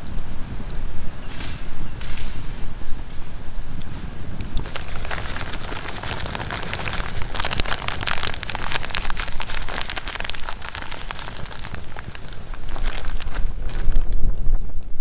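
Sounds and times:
sugar grains pouring: 0:04.6 - 0:14.1.

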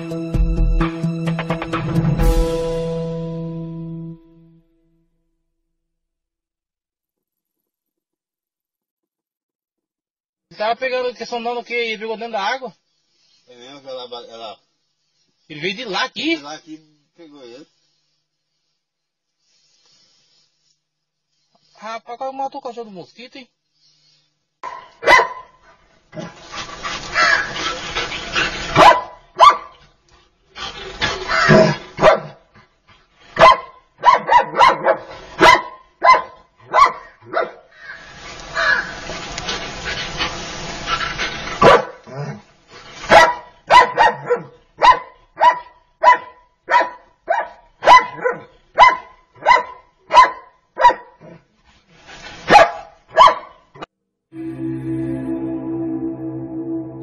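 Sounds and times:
dog barking: 0:24.6 - 0:25.6, 0:27.1 - 0:27.6, 0:28.8 - 0:29.8, 0:31.2 - 0:32.4, 0:33.4 - 0:38.0, 0:41.6 - 0:42.4, 0:43.1 - 0:51.4, 0:52.5 - 0:53.8.

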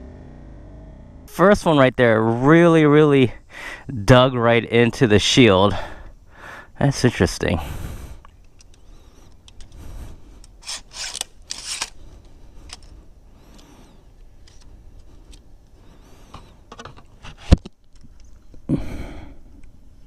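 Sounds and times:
crossbow handling rubbing and scraping: 0:08.2 - 0:18.5.

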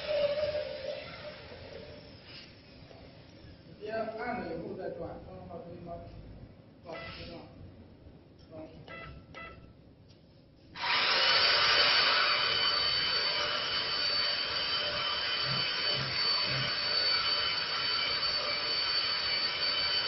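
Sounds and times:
router spindle whining: 0:10.8 - 0:20.0.

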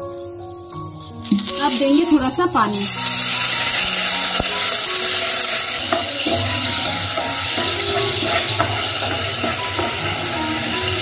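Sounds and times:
oil sizzling and bubbling: 0:00.0 - 0:11.0.

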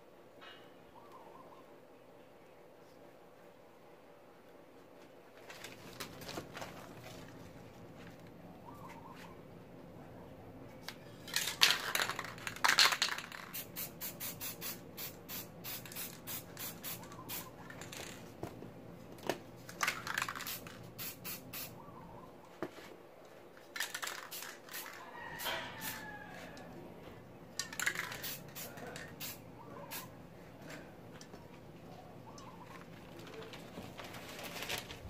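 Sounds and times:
aerosol spray can hissing: 0:13.5 - 0:17.4.

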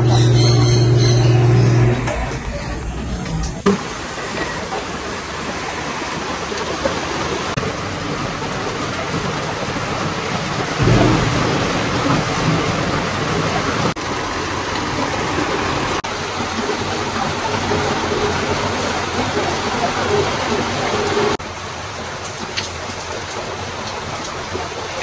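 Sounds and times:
steady rain: 0:03.6 - 0:25.0
low rumble of thunder: 0:10.4 - 0:14.3.

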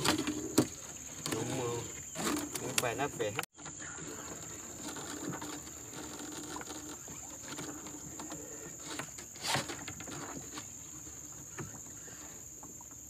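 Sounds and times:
wet clicks of line hauled in: 0:02.2 - 0:03.5.

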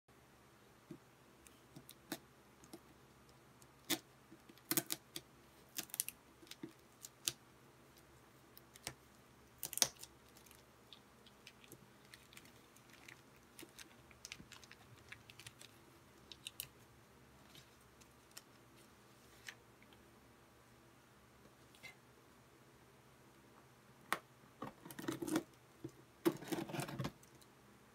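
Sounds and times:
plastic wrap crinkling: 0:11.2 - 0:16.8.

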